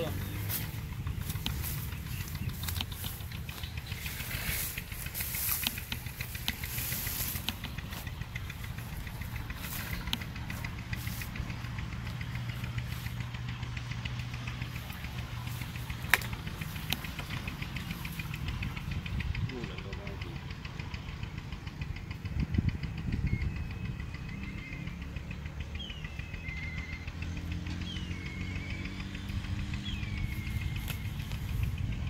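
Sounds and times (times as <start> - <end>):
leaves and branches rustling: 0.0 - 18.9, 30.2 - 32.0
engine idling with knocking tick: 0.0 - 32.0.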